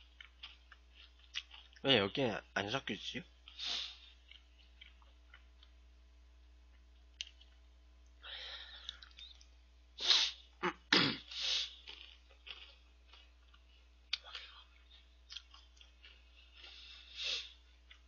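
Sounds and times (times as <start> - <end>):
short hiss: 10.0 - 10.4
slurping and sniffing: 16.7 - 17.6.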